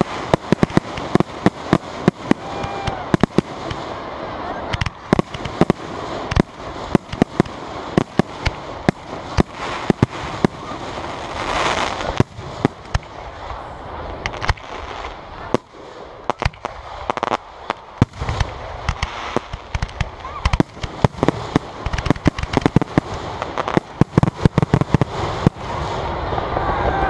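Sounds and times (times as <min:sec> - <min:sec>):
firework shells bursting: 0:00.0 - 0:04.0, 0:04.7 - 0:10.8, 0:14.2 - 0:25.8
crackle and hiss: 0:00.0 - 0:27.0.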